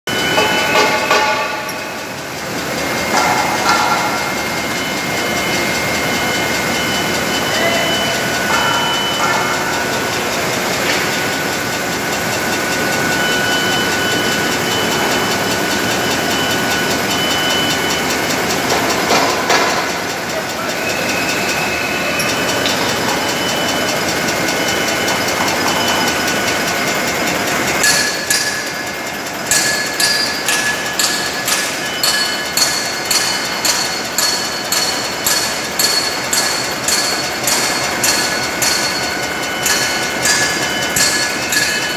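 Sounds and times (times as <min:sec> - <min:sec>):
machine running with whining tones: 0:00.1 - 0:41.9.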